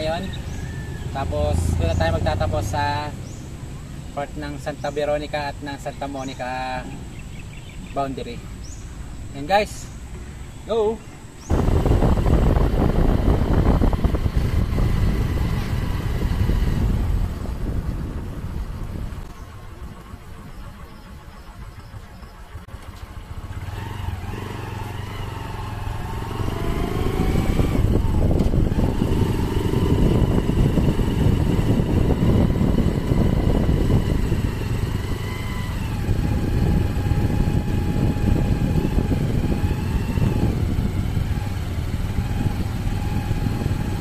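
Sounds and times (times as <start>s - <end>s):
road and wind noise: 0.0s - 44.0s
motorcycle engine running: 11.5s - 44.0s.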